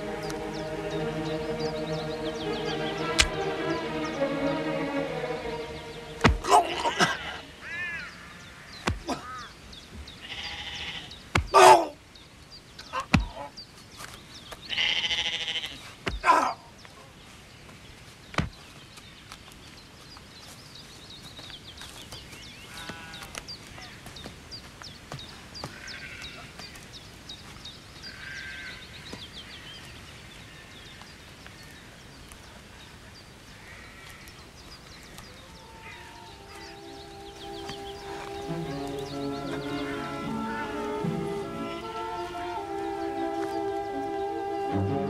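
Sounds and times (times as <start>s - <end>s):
sharp knock: 6.2s - 6.5s
sheep bleating: 10.2s - 11.1s, 14.7s - 15.8s, 25.7s - 26.5s, 39.2s - 42.7s.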